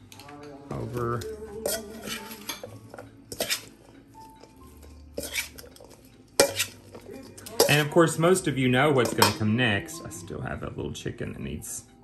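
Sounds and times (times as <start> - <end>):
metal spoon scraping a steel bowl: 0.7 - 9.5.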